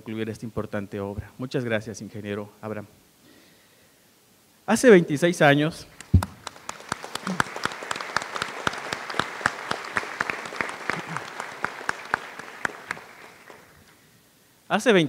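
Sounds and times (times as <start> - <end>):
audience applauding: 5.9 - 14.0
short low thump: 6.1 - 6.4.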